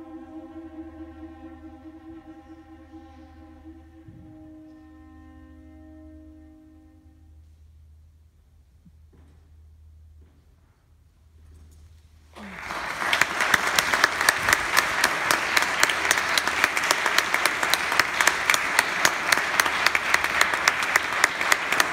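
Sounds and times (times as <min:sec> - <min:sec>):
audience applause: 0:12.4 - 0:21.9
nearby sharp claps: 0:12.4 - 0:21.9.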